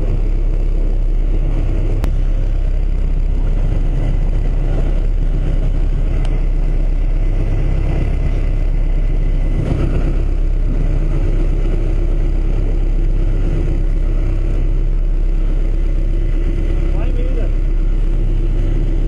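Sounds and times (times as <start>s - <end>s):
boat engine running: 0.0s - 19.0s.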